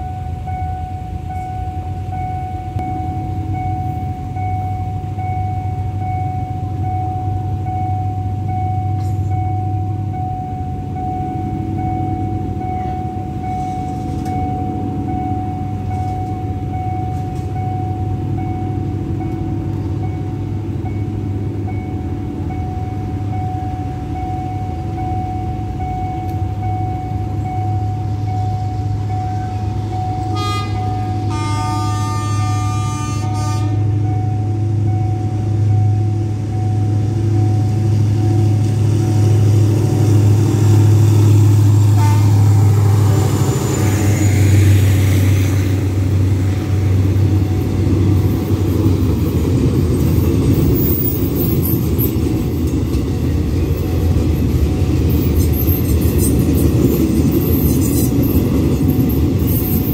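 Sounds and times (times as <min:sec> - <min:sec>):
level crossing bell ringing: 0:00.0 - 0:44.7
constant low rumble: 0:00.0 - 0:59.9
train horn: 0:29.0 - 0:34.1, 0:40.8 - 0:47.6.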